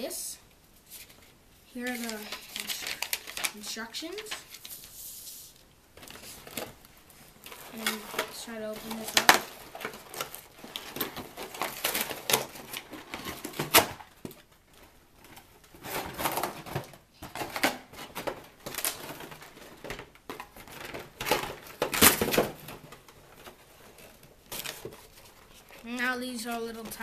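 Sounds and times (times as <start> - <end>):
cardboard scraping and rustling: 0.9 - 27.0.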